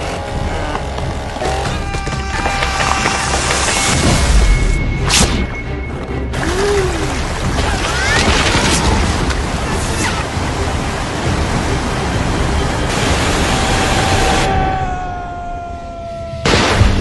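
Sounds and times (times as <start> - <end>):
music: 0.0 - 17.0
waterfall rushing: 6.3 - 15.4.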